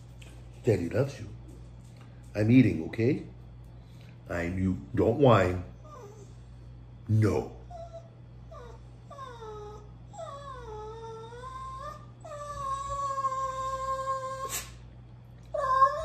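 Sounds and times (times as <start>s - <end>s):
dog whining: 5.7s - 6.5s, 7.6s - 14.8s, 15.4s - 16.0s.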